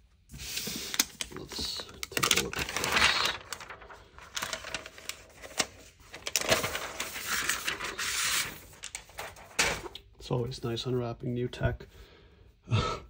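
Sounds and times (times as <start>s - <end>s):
paper wrapping rustling: 0.4s - 10.0s.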